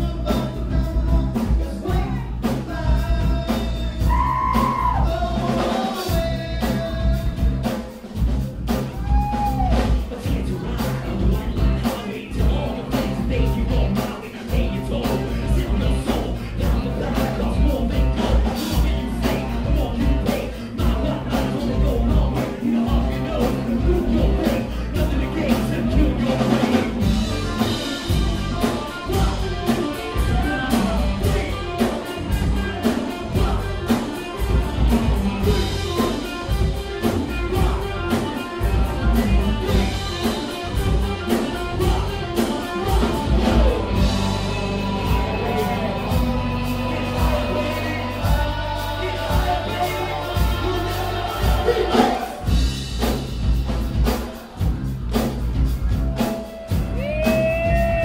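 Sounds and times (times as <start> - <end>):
bass guitar: 0.0 - 58.0
drum kit beat: 0.0 - 58.0
electric guitars: 0.0 - 58.0
person singing amplified: 35.4 - 52.5.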